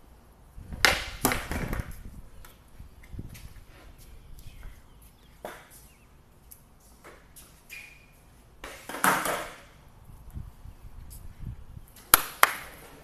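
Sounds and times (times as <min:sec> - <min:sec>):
skateboard clatter: 0:00.8 - 0:02.0, 0:08.6 - 0:09.7
skateboard clacks on concrete: 0:00.8 - 0:02.6, 0:08.6 - 0:09.7, 0:12.0 - 0:13.0.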